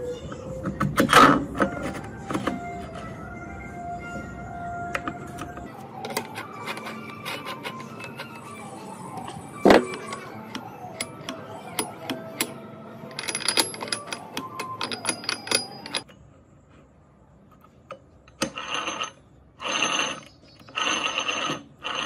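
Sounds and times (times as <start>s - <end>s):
metal tools clinking: 13.1s - 16.2s.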